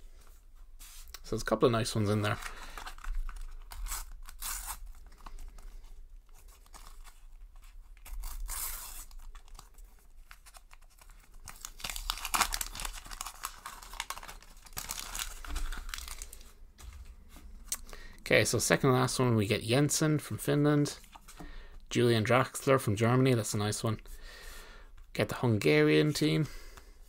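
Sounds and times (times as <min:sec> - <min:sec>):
wrapper crinkling and rustling: 0:02.0 - 0:17.8
sticker packet tearing: 0:08.0 - 0:16.4.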